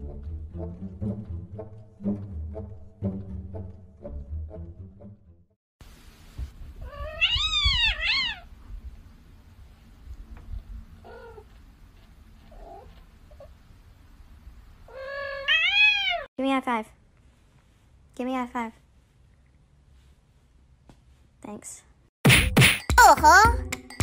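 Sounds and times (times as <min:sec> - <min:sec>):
another cat meowing: 0:06.8 - 0:08.5, 0:14.9 - 0:16.3
kitten meowing: 0:06.8 - 0:08.5, 0:14.9 - 0:16.3.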